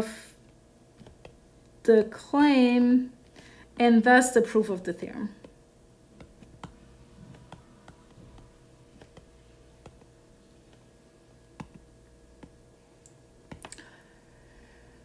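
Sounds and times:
stylus tapping on glass screen: 0:11.6 - 0:12.6.

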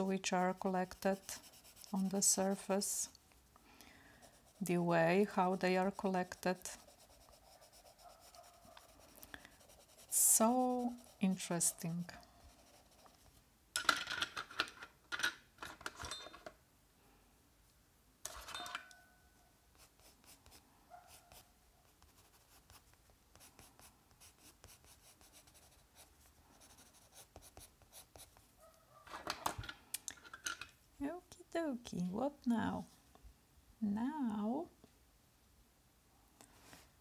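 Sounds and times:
pencil scratching on paper: 0:00.1 - 0:03.0, 0:04.2 - 0:13.4, 0:19.7 - 0:28.5.

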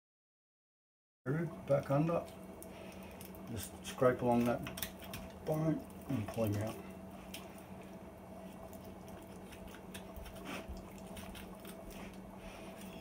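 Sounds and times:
wet squish of flesh: 0:02.2 - 0:13.0
knife scraping chicken bone: 0:09.2 - 0:13.0.

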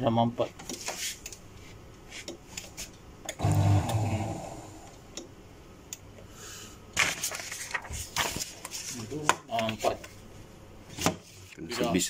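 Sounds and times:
paper shredder motor straining: 0:03.4 - 0:04.4.

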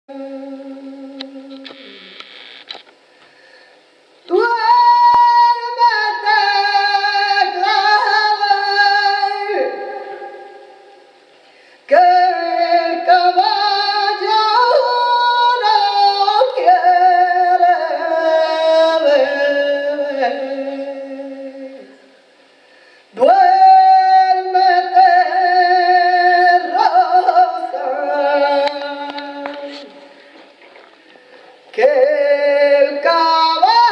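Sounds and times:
women singing unaccompanied: 0:04.3 - 0:11.0, 0:11.9 - 0:22.0, 0:23.2 - 0:30.2, 0:31.7 - 0:33.9.

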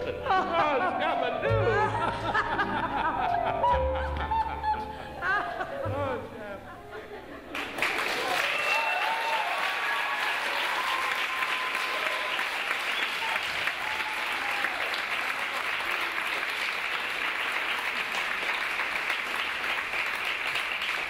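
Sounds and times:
audience applauding: 0:07.5 - 0:21.0.

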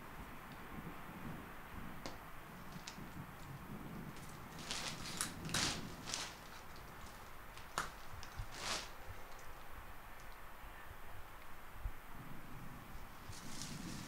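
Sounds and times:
plastic umbrella rustling: 0:02.4 - 0:09.6, 0:13.1 - 0:14.0.

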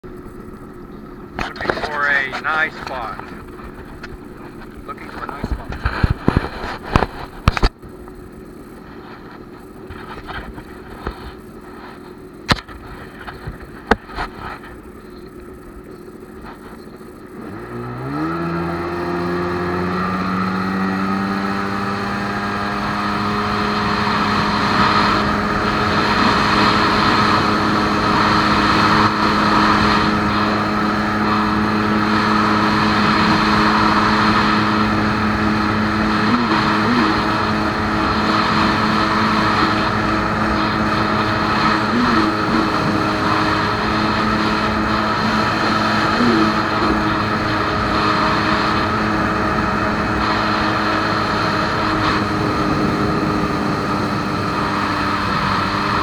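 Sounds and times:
jet ski engine: 0:00.0 - 0:56.0.

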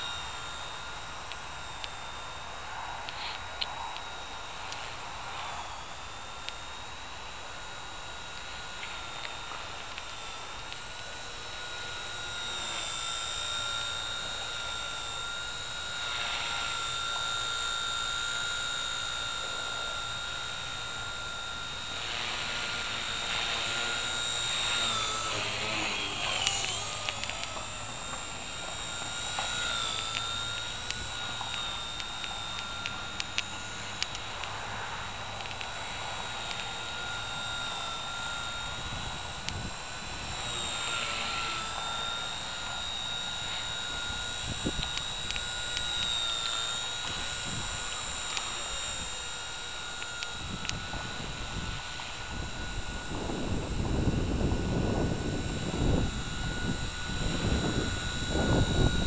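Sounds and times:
rc helicopter rotor whine: 0:00.0 - 0:59.0
sharp clicks: 0:08.0 - 0:54.7.

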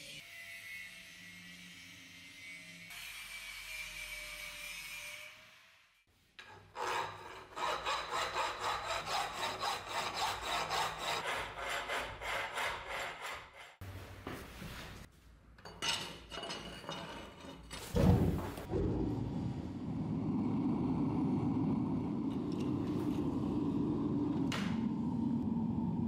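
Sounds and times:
file rasping on steel: 0:06.4 - 0:13.8
forge fire rushing: 0:18.7 - 0:26.0.

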